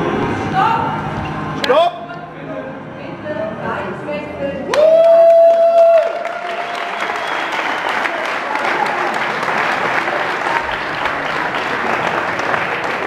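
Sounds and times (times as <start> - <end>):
audience applauding: 4.7 - 13.0.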